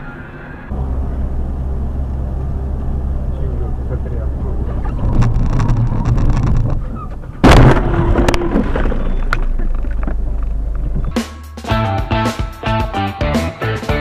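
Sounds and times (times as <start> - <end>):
vehicle rumble: 0.0 - 11.3
loud crash with clattering: 5.0 - 9.8
guitar music: 11.0 - 14.0.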